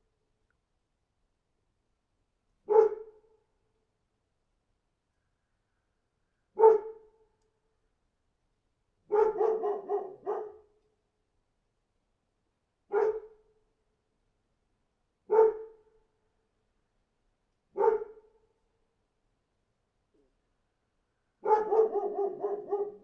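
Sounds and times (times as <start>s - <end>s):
dog barking: 2.7s - 3.2s, 6.6s - 7.1s, 9.1s - 10.7s, 12.9s - 13.4s, 15.3s - 15.9s, 17.8s - 18.3s, 21.4s - 23.0s.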